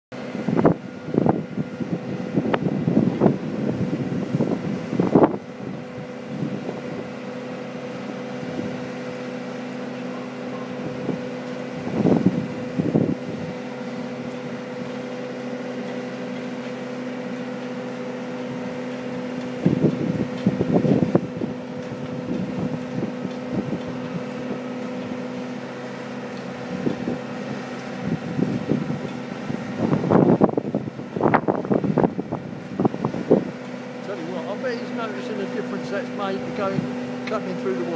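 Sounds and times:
boat engine humming: 0.1s - 37.9s
wind buffeting the microphone: 0.2s - 9.2s, 10.6s - 14.6s, 19.5s - 25.2s, 26.6s - 37.9s.

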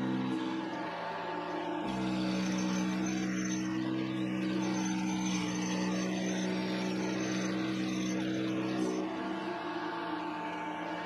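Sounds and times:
metal lathe humming: 1.6s - 9.7s.

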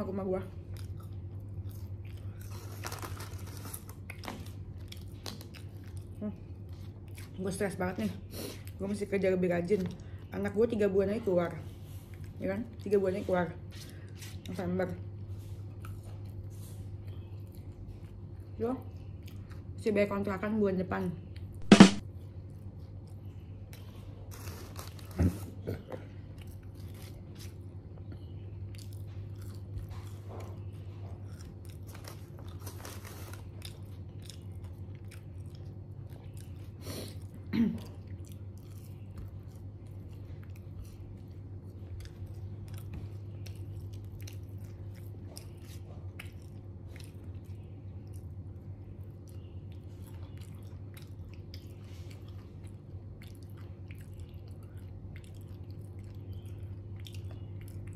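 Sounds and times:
chewing and crunching: 0.0s - 57.9s
steady low hum: 0.0s - 57.9s.

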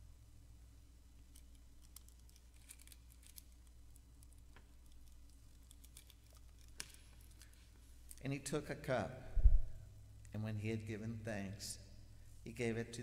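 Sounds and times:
steady low hum: 0.0s - 13.0s
paper crinkling: 1.4s - 8.2s.

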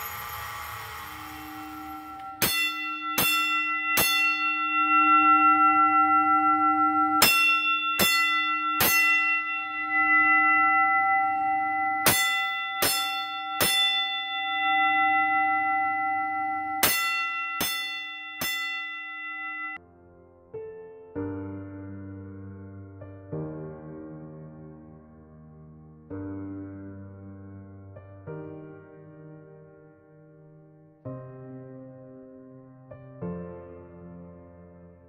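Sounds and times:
fire alarm bell ringing: 1.3s - 19.8s.

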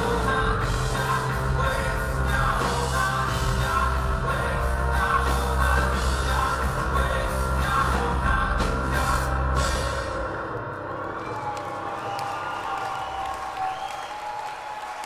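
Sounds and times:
steady bass line: 0.0s - 10.8s
rock song with singing: 0.0s - 11.3s.

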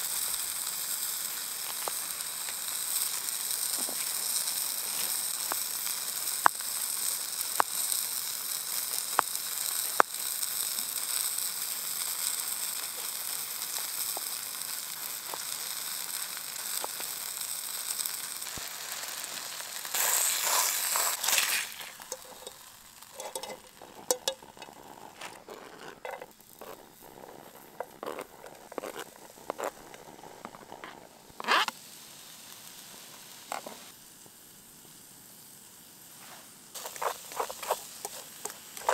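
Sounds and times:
chicken sizzling in oil: 0.0s - 25.2s, 31.2s - 38.9s
clicks and scrapes in pan: 20.0s - 26.8s, 36.8s - 38.9s.

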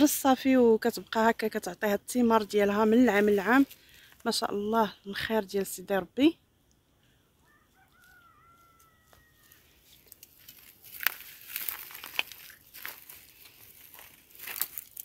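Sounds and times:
crunching and crinkling: 2.9s - 4.4s, 7.9s - 15.0s
rooster crowing: 7.4s - 9.9s.

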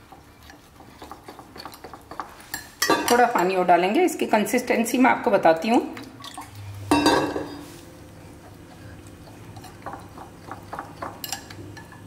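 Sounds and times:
whisk stirring batter: 0.0s - 3.2s, 8.2s - 12.0s.

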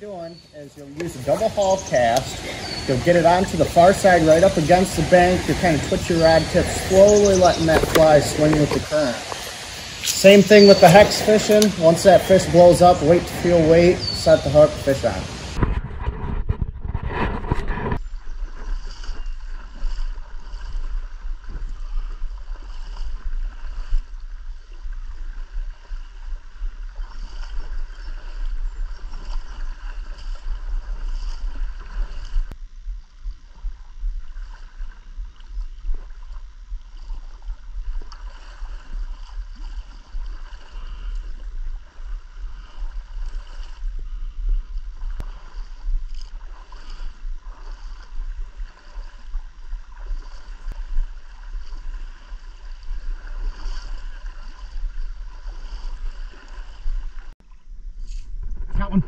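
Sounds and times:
river water splashing: 0.0s - 15.7s, 17.2s - 32.6s, 33.3s - 57.7s
faint high buzz: 0.4s - 15.7s, 26.2s - 56.7s.

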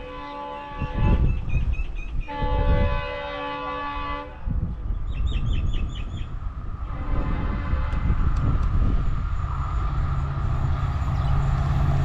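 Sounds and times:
distant diesel locomotive air horn: 0.0s - 1.3s, 2.3s - 4.6s, 6.8s - 8.3s
low rumble: 6.3s - 12.0s.

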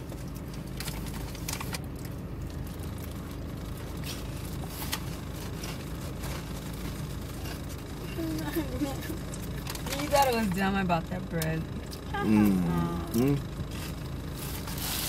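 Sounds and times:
car cabin hum and rumble: 0.0s - 15.0s
person chewing: 11.8s - 15.0s.

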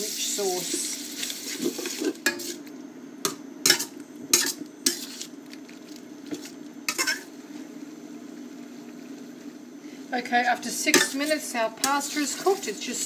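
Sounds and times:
steady low hum: 0.0s - 13.0s
utensil scraping frying pan: 0.6s - 2.6s, 3.6s - 5.4s, 6.9s - 7.3s, 10.8s - 13.0s.

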